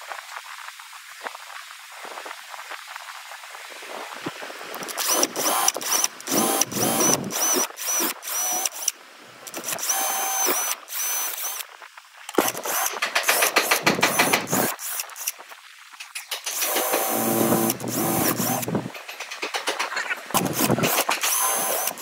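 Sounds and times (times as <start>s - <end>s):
power drill boring into wood: 4.7s - 8.9s, 9.5s - 11.7s, 12.3s - 15.4s, 16.4s - 19.0s, 20.3s - 22.0s.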